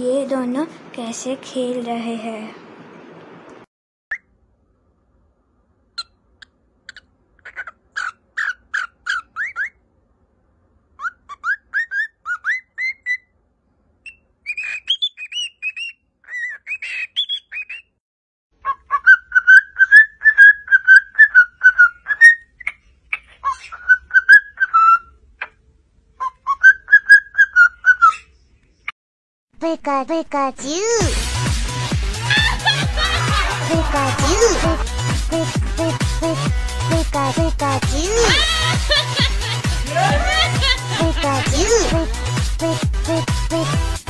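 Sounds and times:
cockatiel whistling and chirping: 6.9 - 9.8, 11.0 - 13.3, 14.0 - 17.9, 18.6 - 25.1, 26.2 - 28.2.

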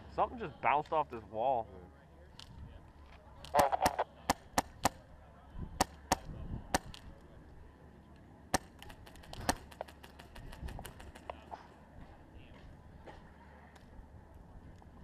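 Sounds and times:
airsoft rifle shots snapping: 3.4 - 5.0, 8.5 - 11.4.

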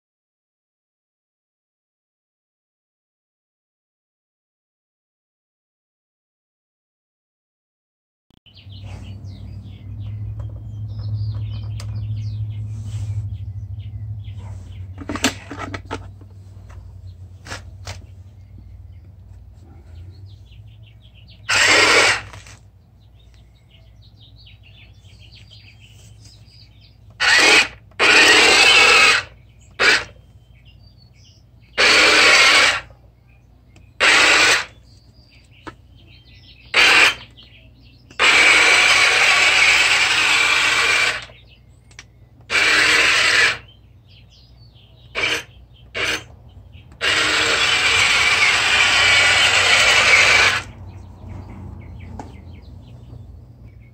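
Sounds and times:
toy tank motors whirring: 21.5 - 22.6, 27.1 - 30.2, 31.8 - 32.9, 34.0 - 34.8, 36.7 - 37.3, 38.1 - 43.7, 45.1 - 46.3, 46.9 - 50.8.

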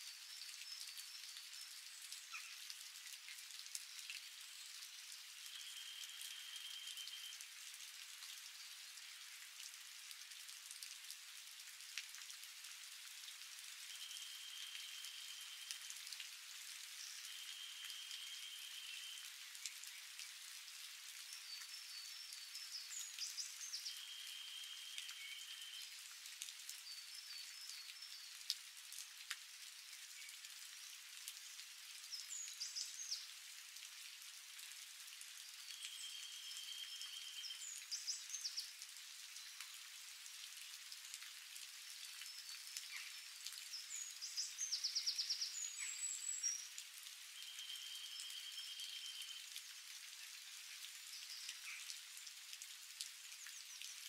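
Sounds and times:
light rain falling: 0.0 - 54.0
raindrops ticking and dripping: 0.0 - 54.0.

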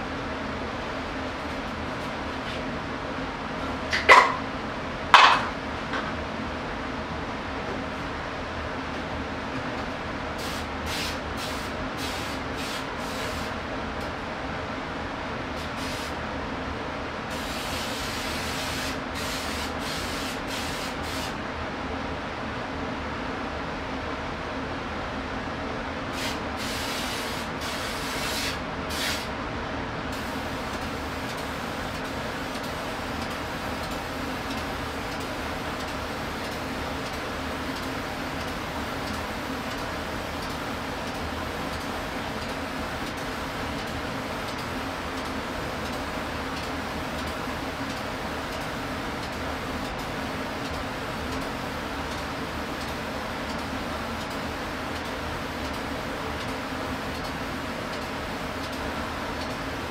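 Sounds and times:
steady machine hum with hiss: 0.0 - 59.9
short sharp hisses: 26.2 - 29.3.

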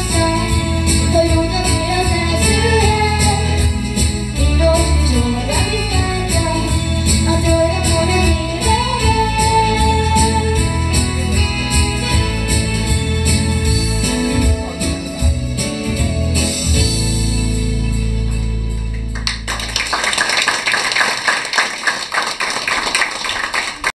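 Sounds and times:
audience applause: 19.1 - 24.0.

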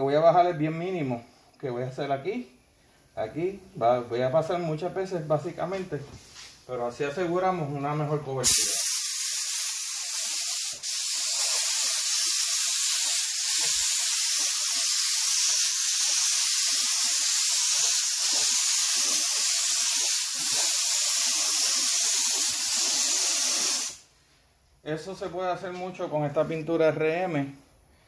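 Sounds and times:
spray gun hissing: 8.4 - 24.1.

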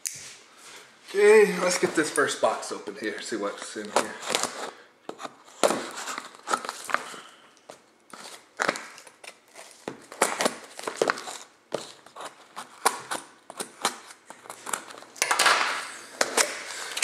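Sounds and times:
packing material crinkling: 5.4 - 17.0.

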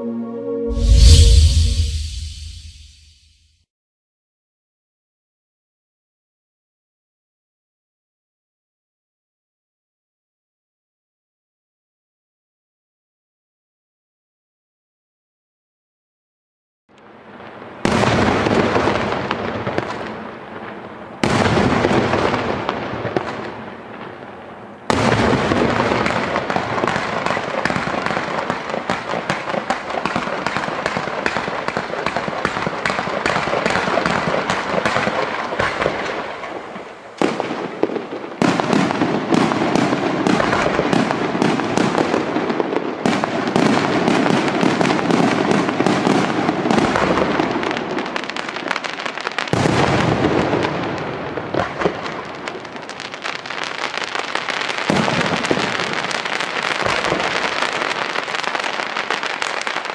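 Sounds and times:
rapid fireworks barrage: 17.4 - 59.9.

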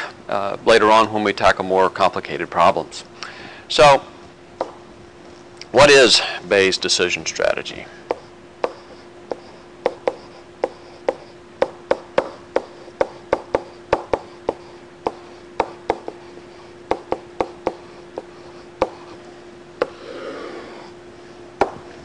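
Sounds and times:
faint steady hum: 0.0 - 22.0
stylus tapping on tablet: 8.1 - 16.2, 16.9 - 19.0.

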